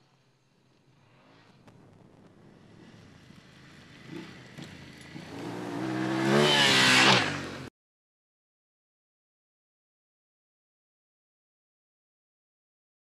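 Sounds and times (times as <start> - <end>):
gravel spraying from tyre: 0.0 - 7.5
motorcycle engine revving: 2.2 - 7.7.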